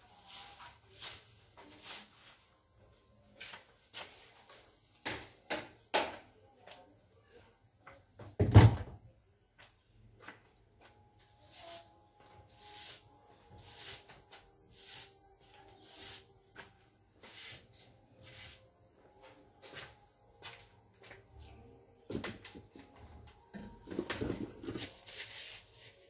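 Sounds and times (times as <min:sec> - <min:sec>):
broom sweeping floor: 0:00.0 - 0:05.4, 0:11.2 - 0:18.9, 0:24.1 - 0:26.0.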